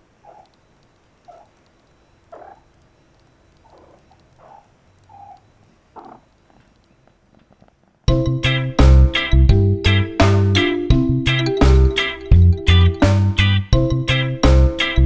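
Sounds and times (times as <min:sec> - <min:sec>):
upbeat music with plucked guitar: 0:08.1 - 0:15.0.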